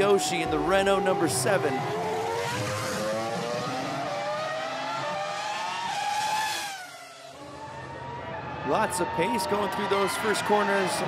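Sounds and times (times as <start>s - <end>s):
race car engine accelerating: 0.4s - 7.7s.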